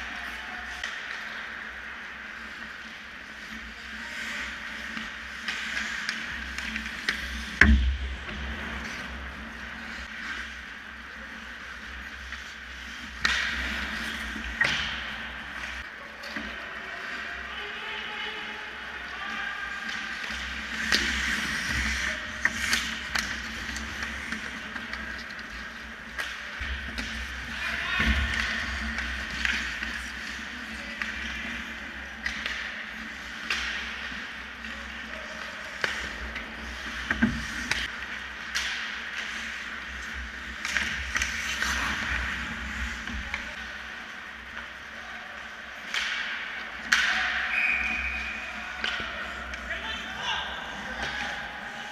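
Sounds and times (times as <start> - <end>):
low rink hum: 0.0 - 51.9
skates scraping ice: 0.0 - 51.9
sticks clacking on puck: 12.2 - 16.5, 19.8 - 43.6, 45.7 - 49.7.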